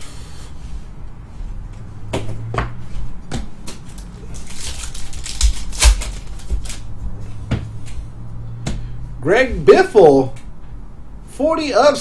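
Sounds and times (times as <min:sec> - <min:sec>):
trading cards clicking and sliding: 0:03.6 - 0:06.9
foil pack crinkling: 0:04.2 - 0:06.8.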